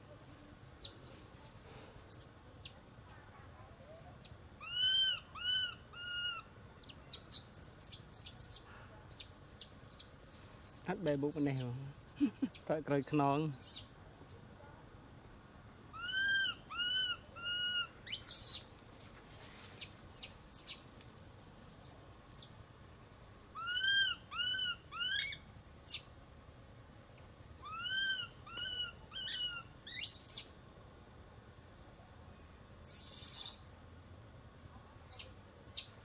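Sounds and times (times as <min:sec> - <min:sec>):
infant monkey cooing: 0:11.4 - 0:12.7, 0:15.9 - 0:18.6, 0:27.6 - 0:30.4.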